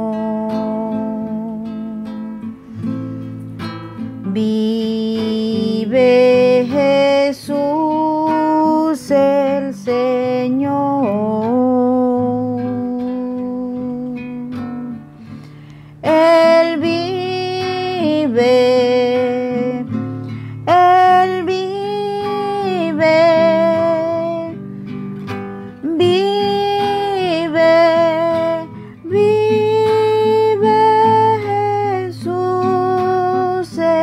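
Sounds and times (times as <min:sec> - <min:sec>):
person singing a hymn: 0:00.0 - 0:02.2, 0:04.2 - 0:15.0, 0:16.0 - 0:24.6, 0:25.8 - 0:34.0
acoustic guitar: 0:00.0 - 0:34.0.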